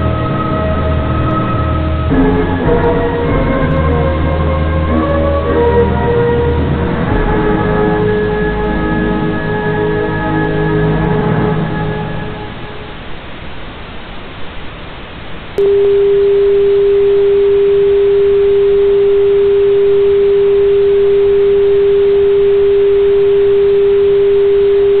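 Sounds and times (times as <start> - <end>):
music: 0.0 - 13.0
steady test tone: 0.0 - 14.4, 15.4 - 25.0.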